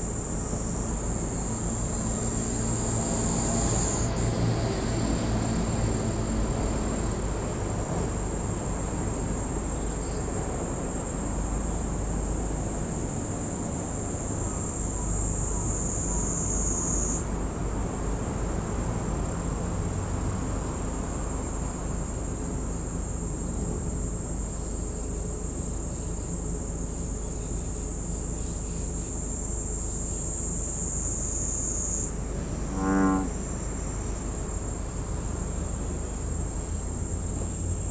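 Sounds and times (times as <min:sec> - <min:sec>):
insects shrilling: 0:30.9 - 0:33.9.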